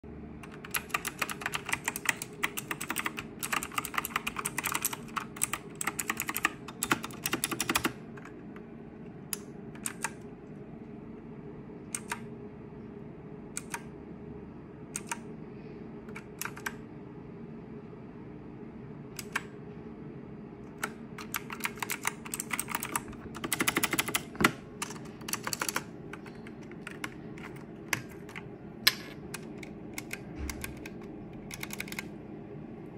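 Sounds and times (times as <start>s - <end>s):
mechanical keyboard typing: 0.4s - 8.3s, 9.4s - 10.2s, 12.0s - 12.3s, 13.6s - 13.9s, 15.0s - 15.2s, 16.1s - 16.8s, 19.2s - 19.5s, 20.7s - 32.1s.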